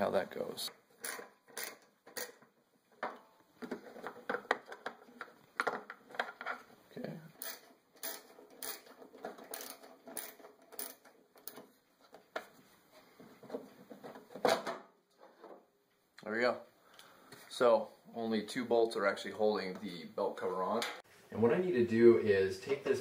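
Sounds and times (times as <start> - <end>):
tool handling clicks and knocks: 1.0 - 6.8, 7.4 - 12.6, 13.2 - 15.7.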